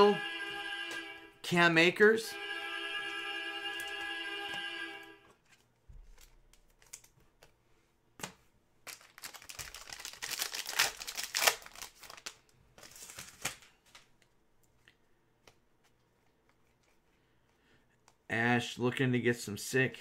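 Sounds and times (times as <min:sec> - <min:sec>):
plastic wrapper crinkling and tearing: 0:05.4 - 0:07.2, 0:08.8 - 0:14.1.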